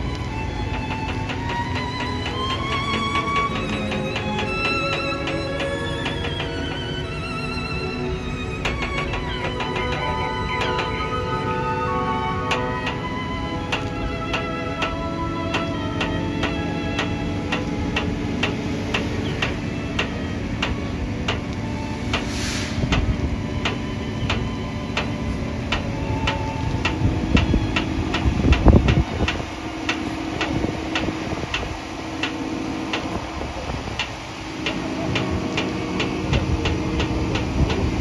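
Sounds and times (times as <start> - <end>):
heavy trailer rumbling past: 0.0 - 18.4
steady ticking: 0.0 - 22.2.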